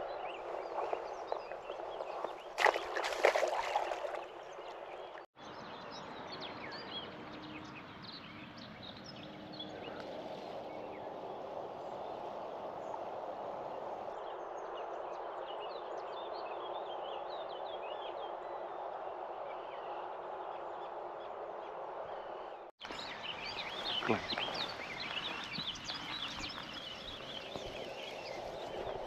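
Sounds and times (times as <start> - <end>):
small birds chirping: 0.0 - 13.1, 22.0 - 29.0.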